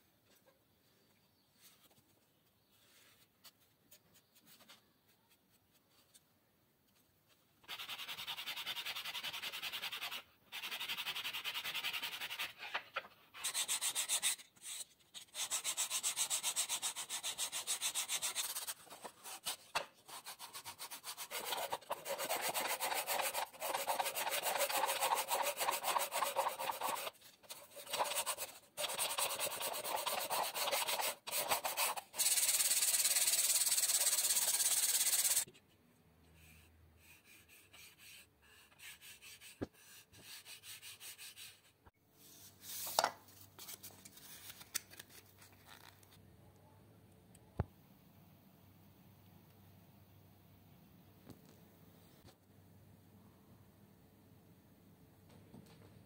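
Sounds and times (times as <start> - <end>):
sandpaper rubbing on wood: 7.7 - 12.6, 15.4 - 35.5.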